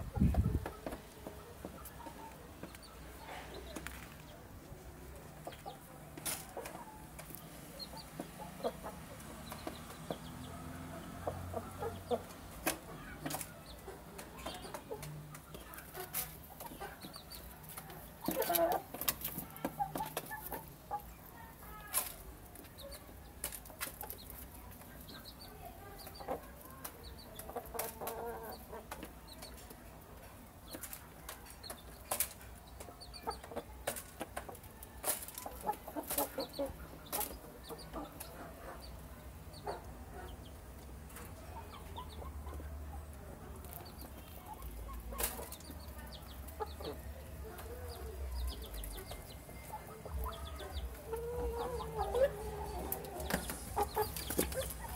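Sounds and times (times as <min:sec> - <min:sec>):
chickens clucking softly: 0:00.0 - 0:54.9
beaks tapping on concrete: 0:05.4 - 0:10.5, 0:11.2 - 0:54.9.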